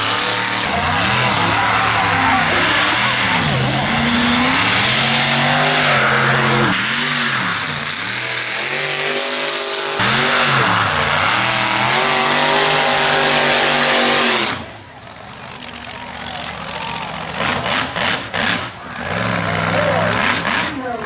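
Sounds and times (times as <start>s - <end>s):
truck engine revving hard: 0.0s - 21.0s.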